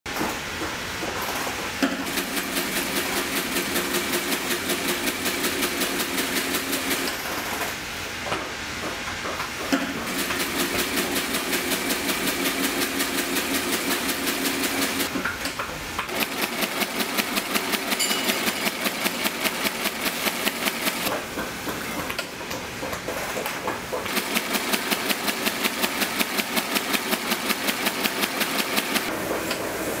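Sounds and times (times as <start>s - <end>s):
stitching machine clatter: 1.9s - 7.7s, 9.7s - 15.2s, 16.1s - 21.2s, 23.2s - 29.5s.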